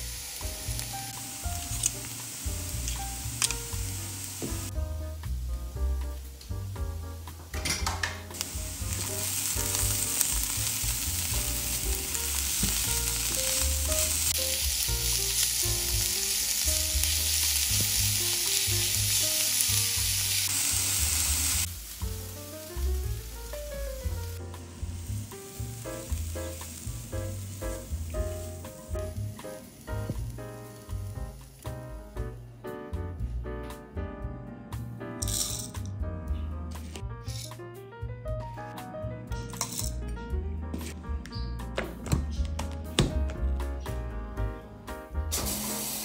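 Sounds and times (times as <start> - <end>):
vegetables sizzling in oil: 0.0 - 4.7, 8.2 - 31.7, 45.3 - 46.0.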